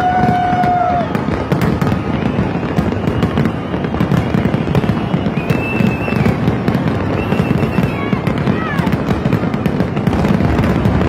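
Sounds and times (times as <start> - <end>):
fireworks barrage booming and crackling: 0.0 - 11.0
high whistle: 2.2 - 6.4, 7.0 - 8.0.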